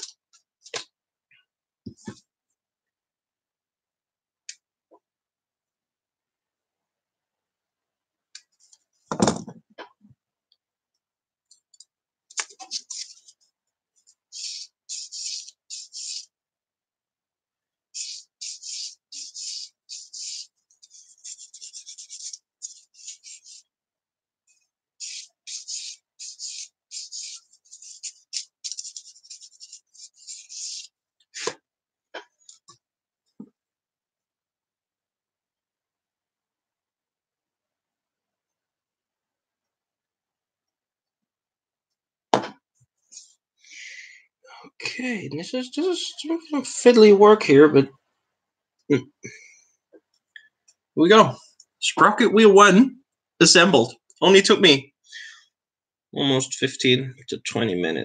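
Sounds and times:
sanding stick rubbing plastic: 0:12.6 - 0:13.3, 0:14.3 - 0:16.3, 0:18.0 - 0:23.6, 0:25.0 - 0:30.9.

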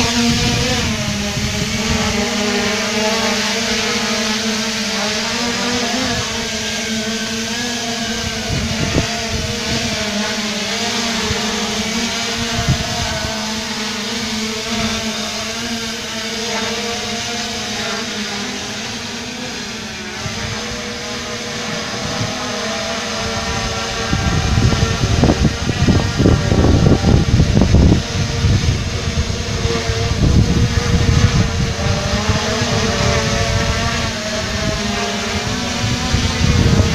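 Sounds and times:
low rumbling gusts: 0:00.0 - 0:03.0, 0:08.0 - 0:10.2, 0:11.2 - 0:13.6, 0:20.1 - 0:36.9
drone propellers whining: 0:00.0 - 0:36.9.

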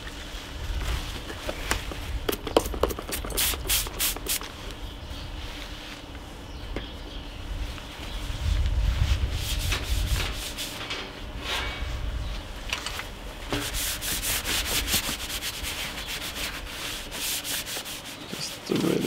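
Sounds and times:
paper towel scratching metal panel: 0:13.5 - 0:19.0.

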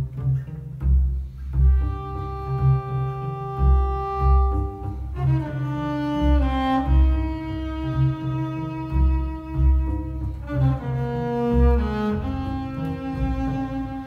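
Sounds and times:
bowed double basses: 0:00.0 - 0:14.0
low bass notes in rhythm: 0:00.0 - 0:14.0.

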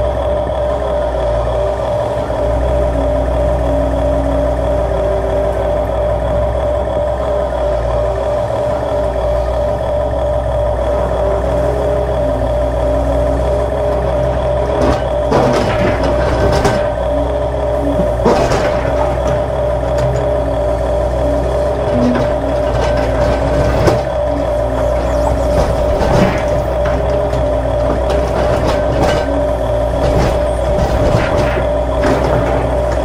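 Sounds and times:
toy excavators whining: 0:00.0 - 0:33.0
buckets scraping dirt and stones: 0:21.8 - 0:33.0.

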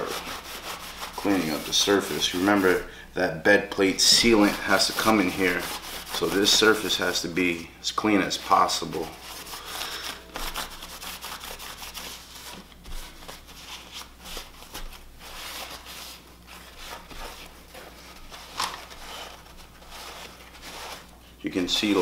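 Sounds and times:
rag rubbing on metal: 0:00.0 - 0:02.9, 0:04.0 - 0:07.0.

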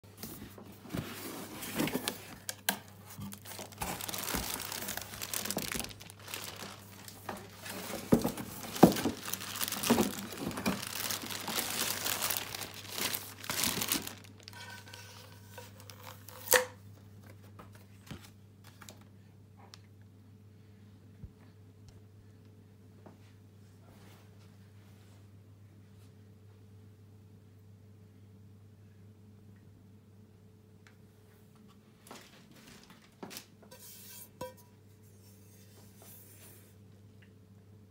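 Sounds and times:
plastic wrapping crinkling and tearing: 0:01.7 - 0:16.7, 0:32.1 - 0:33.5.

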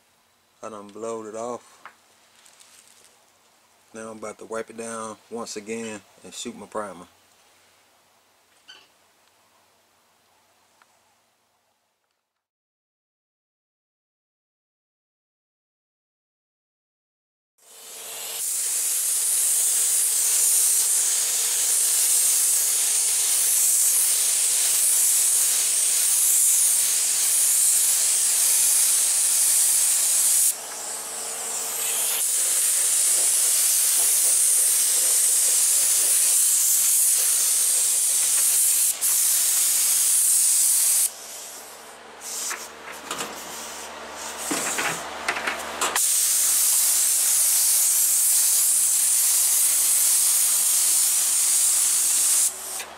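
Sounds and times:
spray gun hissing: 0:17.7 - 0:44.8, 0:46.0 - 0:52.9.

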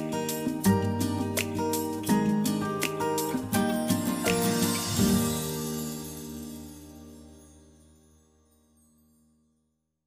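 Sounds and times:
plucked guitar music: 0:00.0 - 0:07.9.

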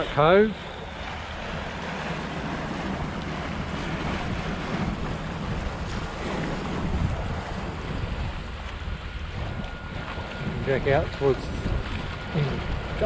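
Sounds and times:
water rushing along hull: 0:00.0 - 0:13.0
wind buffeting microphone: 0:00.0 - 0:13.0.

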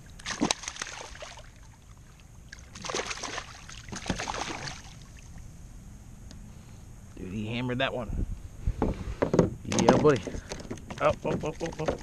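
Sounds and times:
fish thrashing and splashing water: 0:00.2 - 0:05.2, 0:10.4 - 0:12.0.

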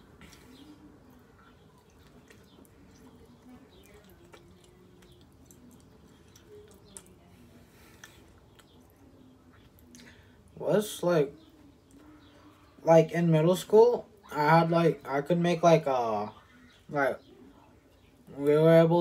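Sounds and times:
person chewing: 0:00.0 - 0:10.3.

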